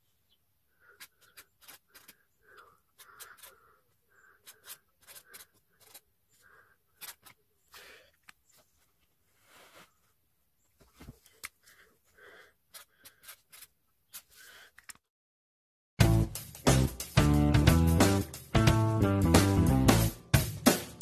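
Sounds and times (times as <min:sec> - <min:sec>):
marker writing on paper: 0:00.9 - 0:07.3.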